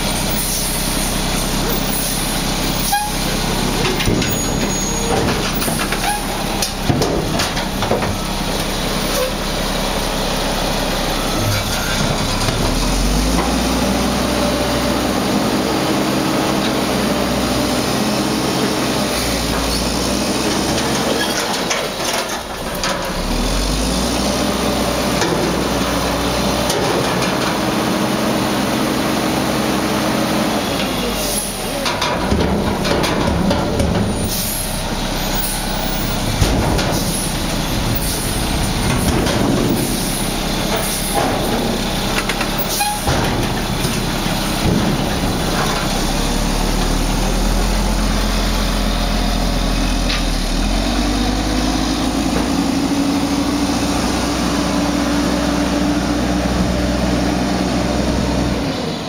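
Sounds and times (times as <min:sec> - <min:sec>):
diesel engine under hydraulic load: 0:00.0 - 0:59.0
truck pulling away: 0:00.0 - 0:59.0
metal clanks and bangs: 0:02.8 - 0:09.4, 0:31.7 - 0:47.0.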